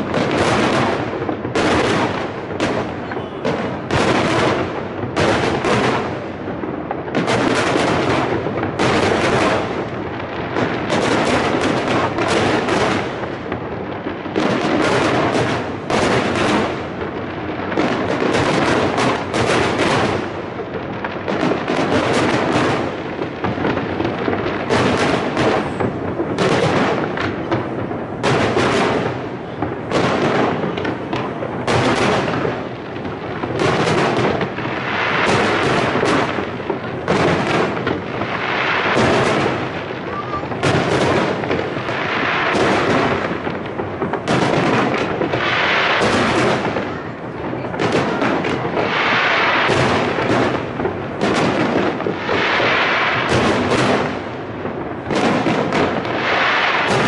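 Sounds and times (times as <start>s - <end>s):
firework shells bursting: 21.3s - 57.0s.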